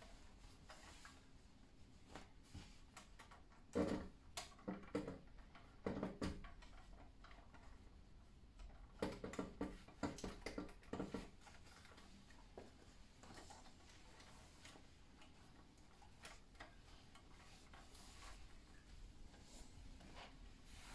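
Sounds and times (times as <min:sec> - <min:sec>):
light clicks and knocks: 0:00.0 - 0:20.9
cleaning cloth rustling: 0:11.0 - 0:20.9.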